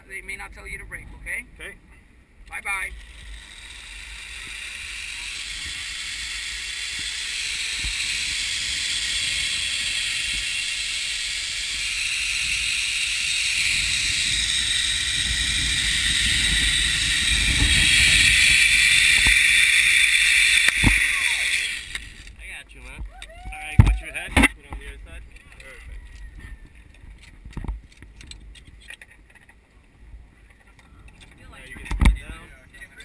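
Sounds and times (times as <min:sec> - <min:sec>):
zip line pulleys whirring: 0:02.8 - 0:22.4.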